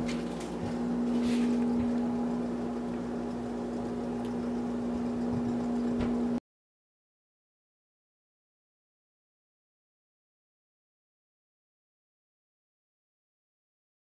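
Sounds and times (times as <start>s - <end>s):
appliance humming: 0.0s - 6.4s.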